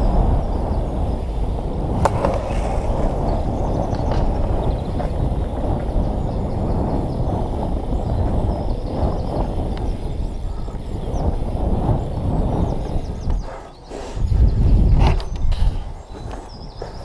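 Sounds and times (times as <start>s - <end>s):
bike tyres rolling on concrete: 0.0s - 17.0s
wind on microphone: 0.0s - 17.0s.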